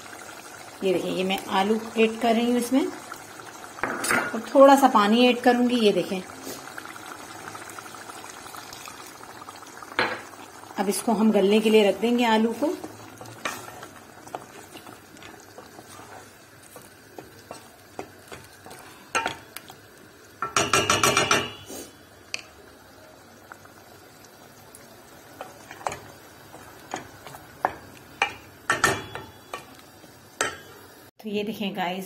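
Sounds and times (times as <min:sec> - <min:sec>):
wooden spoon stirring pot: 0:10.8 - 0:19.8, 0:25.2 - 0:29.8
spoon knocking metal pot: 0:20.4 - 0:21.6, 0:27.6 - 0:29.7.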